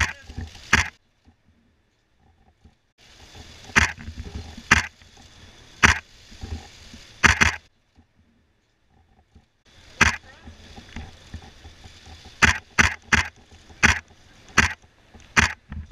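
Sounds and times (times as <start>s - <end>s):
camera shutter clicks: 7.2s - 7.6s, 15.4s - 15.6s.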